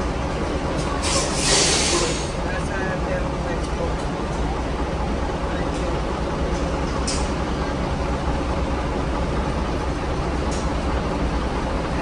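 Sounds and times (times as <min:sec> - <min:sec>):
diesel engine rumbling: 0:00.0 - 0:12.0
short faint hisses: 0:01.0 - 0:02.4.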